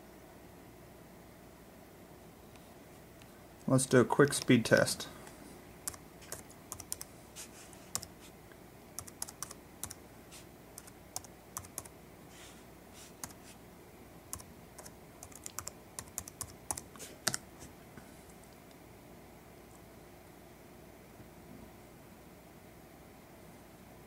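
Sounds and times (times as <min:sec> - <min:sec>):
keyboard typing clicks: 0:05.9 - 0:07.1, 0:07.9 - 0:08.1, 0:09.0 - 0:10.0, 0:10.8 - 0:11.9, 0:14.3 - 0:17.4.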